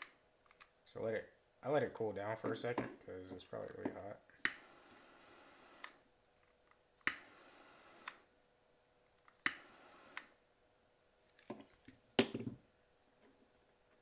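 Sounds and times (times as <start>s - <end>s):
lighter igniter clicking: 7.0s - 7.3s.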